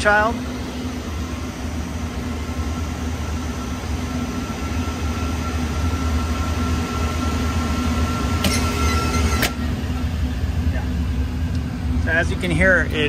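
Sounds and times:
rooftop unit low hum: 0.0 - 13.0
thin whine: 0.0 - 13.0.

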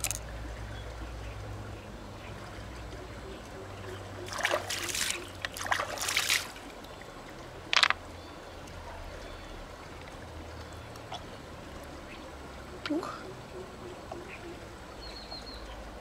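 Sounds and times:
water splashing and trickling: 0.0 - 16.0
sharp water splash: 4.3 - 6.7.

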